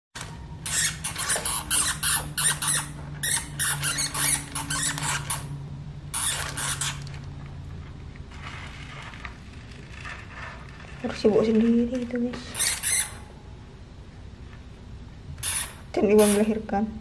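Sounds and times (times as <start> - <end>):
hamster scratching in bedding: 8.3 - 13.2.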